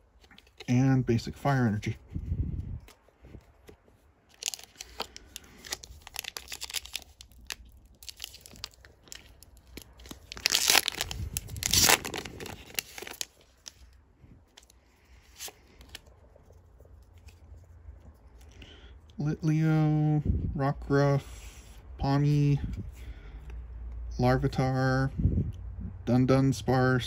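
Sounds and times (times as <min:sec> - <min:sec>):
cards rustling: 0:00.0 - 0:19.2
foil wrapper tearing: 0:04.3 - 0:13.9
foil crinkling: 0:04.3 - 0:14.0.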